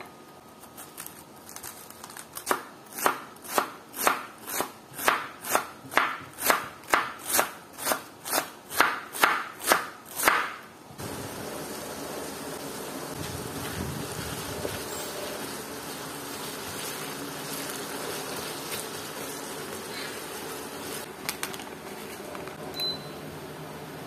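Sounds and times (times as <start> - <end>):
knife chopping on cutting board: 2.5 - 10.6.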